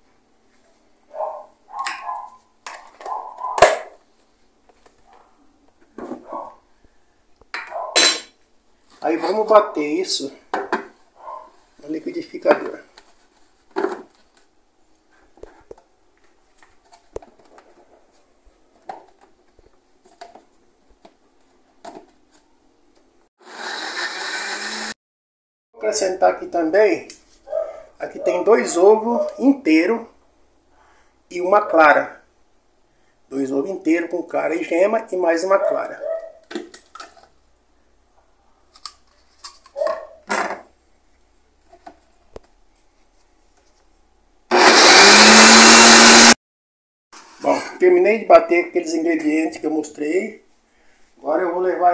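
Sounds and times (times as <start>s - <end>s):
blender motor whirring: 23.4s - 25.0s, 44.5s - 46.4s.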